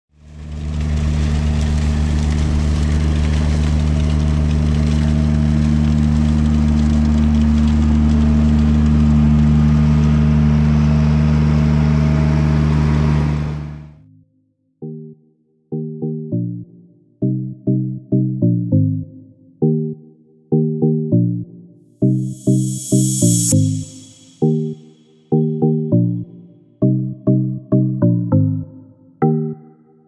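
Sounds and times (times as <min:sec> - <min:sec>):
diesel engine running: 0:00.2 - 0:14.0.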